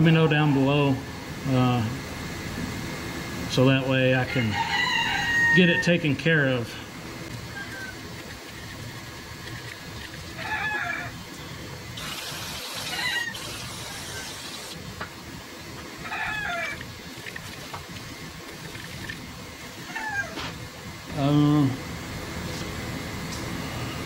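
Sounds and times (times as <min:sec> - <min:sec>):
chickens calling: 0:00.0 - 0:01.0, 0:07.3 - 0:14.8, 0:15.9 - 0:20.6
steady hiss: 0:11.9 - 0:14.9.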